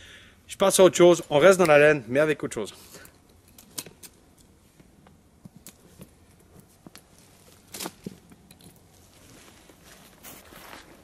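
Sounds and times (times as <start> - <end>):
strap buckle clinks: 3.0 - 4.6, 7.8 - 9.0
shirt rustling: 6.7 - 11.0.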